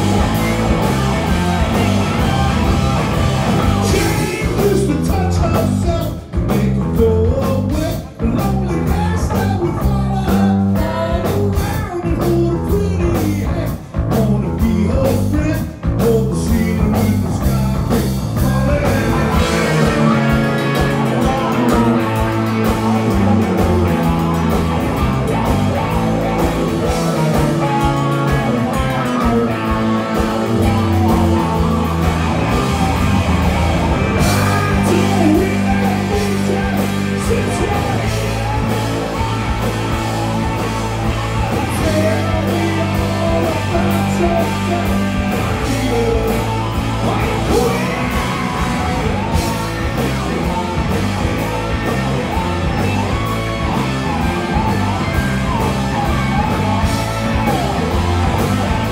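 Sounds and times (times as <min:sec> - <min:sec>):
drums: 0:00.0 - 0:58.9
electric bass: 0:00.0 - 0:58.9
electric guitar: 0:00.0 - 0:58.9
keyboards: 0:00.0 - 0:58.9
person singing: 0:03.7 - 0:23.9, 0:34.2 - 0:49.0.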